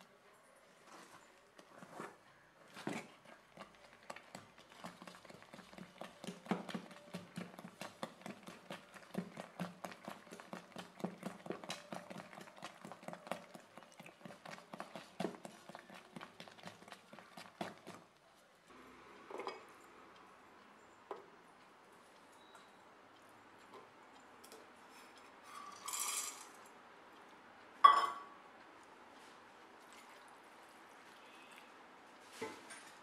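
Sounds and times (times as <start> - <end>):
spoon knocking metal bowl: 27.8 - 28.3.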